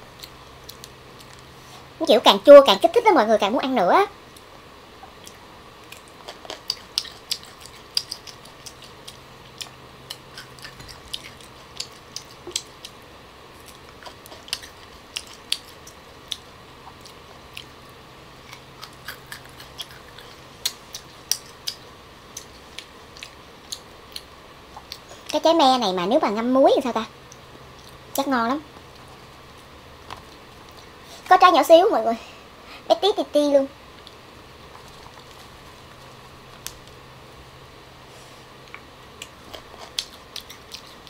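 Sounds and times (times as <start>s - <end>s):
faint hum: 0.0s - 41.0s
chewing crunches: 4.3s - 25.4s, 38.6s - 41.0s.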